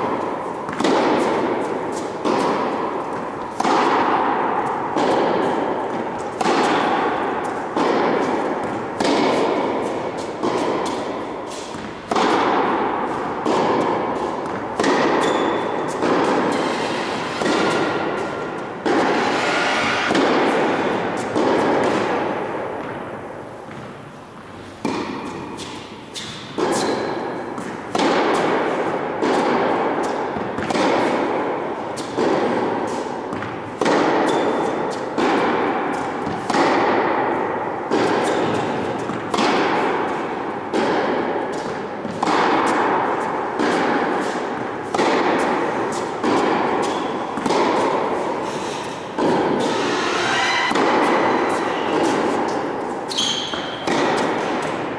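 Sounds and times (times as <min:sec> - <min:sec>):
tennis ball hit by rackets: 0:00.0 - 0:54.9.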